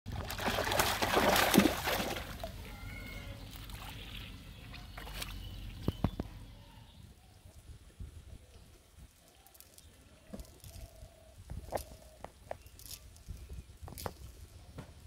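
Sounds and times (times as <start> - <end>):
fish splashing in water: 0.1 - 2.6.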